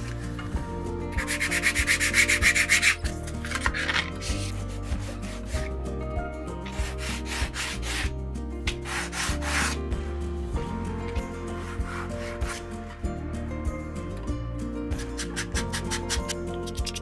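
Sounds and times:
leather scraping on sandpaper: 8.8s - 9.9s.

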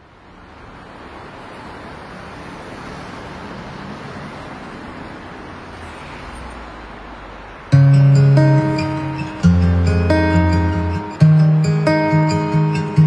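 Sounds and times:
city traffic noise: 0.0s - 13.0s
acoustic guitar strummed: 7.7s - 13.0s.

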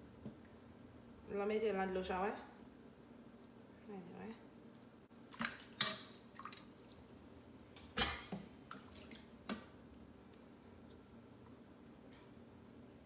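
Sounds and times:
water splashing in a pot: 5.2s - 9.9s.

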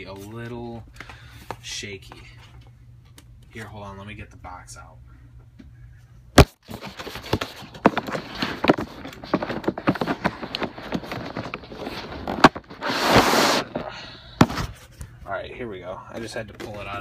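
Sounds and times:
plastic sleeve crinkling: 6.6s - 13.9s
cardboard box scraping: 6.7s - 14.9s.

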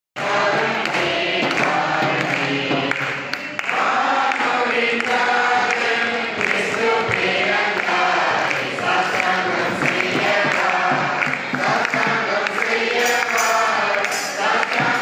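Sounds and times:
men's choir singing: 0.2s - 15.0s.

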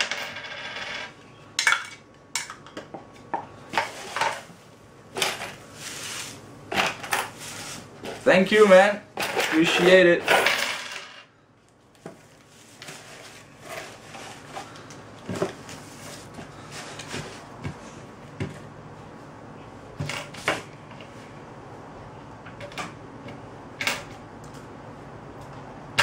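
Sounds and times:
coins knocking on wooden tabletop: 0.0s - 1.1s, 10.4s - 11.2s.

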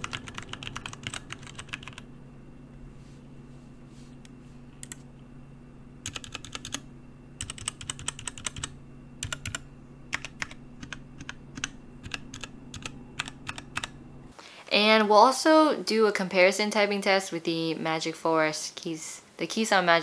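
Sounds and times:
mechanical keyboard typing: 0.0s - 2.0s, 4.8s - 5.0s, 6.0s - 6.8s, 7.4s - 14.0s
steady low hum: 0.0s - 20.0s.

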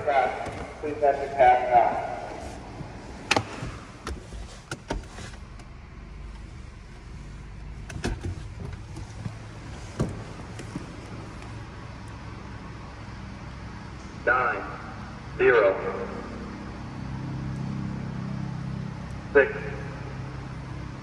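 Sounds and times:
car engine idling: 0.0s - 21.0s
sharp clicks and knocks: 3.3s - 5.7s.

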